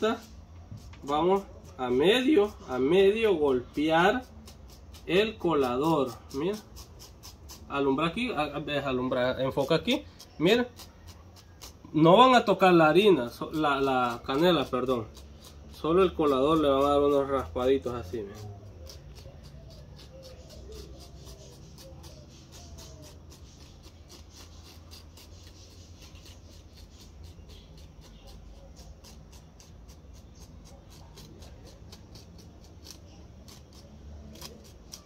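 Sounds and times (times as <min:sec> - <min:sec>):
plastic bag scratching a sieve: 0:00.0 - 0:35.0.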